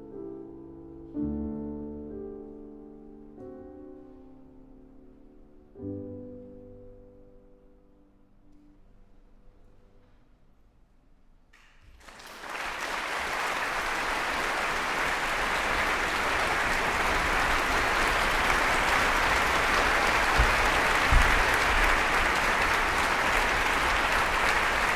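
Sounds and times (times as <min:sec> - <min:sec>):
audience applause: 0:11.9 - 0:24.9.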